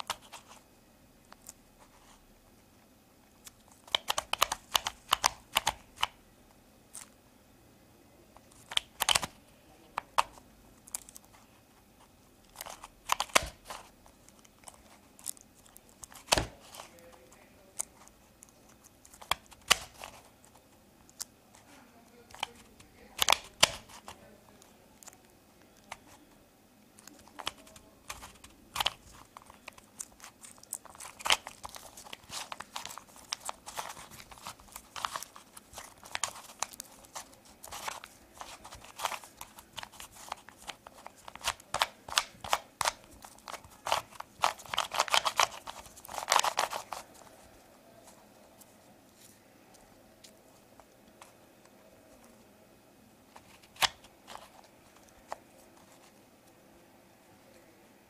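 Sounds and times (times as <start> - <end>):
puzzle cube clicking as twisted: 3.4 - 6.2, 8.5 - 9.4, 12.5 - 16.9, 18.8 - 21.3, 22.3 - 24.2, 27.0 - 47.1.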